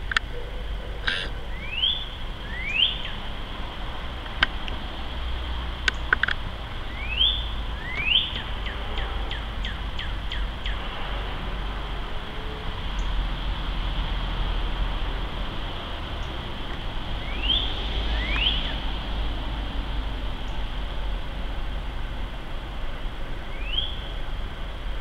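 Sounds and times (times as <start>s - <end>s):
steady low rumble: 0.0s - 25.0s
bird singing slurred whistles: 1.5s - 3.2s, 6.9s - 10.8s, 17.2s - 18.8s, 23.5s - 24.1s.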